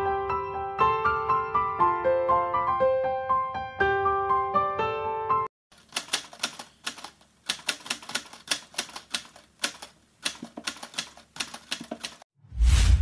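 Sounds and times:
typewriter key clacks: 5.8 - 12.2.

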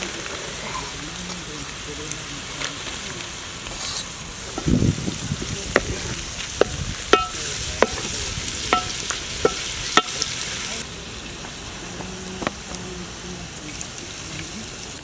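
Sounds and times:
wooden spoon stirring in pan: 0.0 - 10.8
cabbage sizzling in hot oil: 0.0 - 15.0
spoon knocking against pan: 6.6 - 8.1, 8.7 - 10.2.

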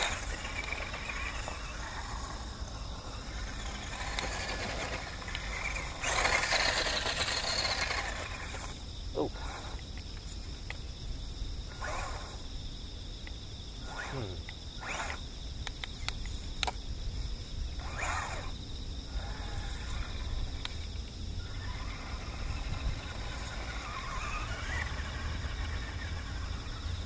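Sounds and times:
rc car electric motor whining: 0.0 - 10.0, 11.7 - 12.5, 13.8 - 15.8, 17.7 - 27.0
wind rumble on microphone: 16.3 - 26.9.

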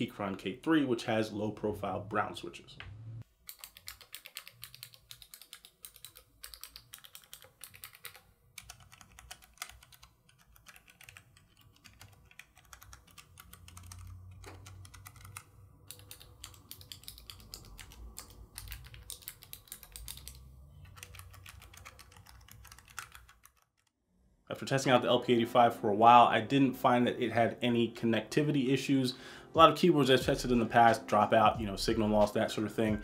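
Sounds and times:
keyboard keystroke clicks: 3.5 - 23.6.

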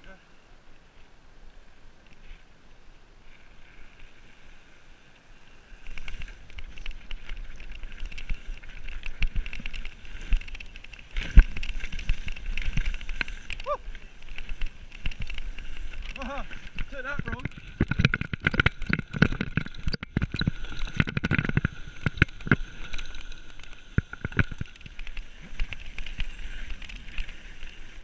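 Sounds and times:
bike tyres on dirt: 0.0 - 28.0
bike thudding over bumps: 5.8 - 28.0.

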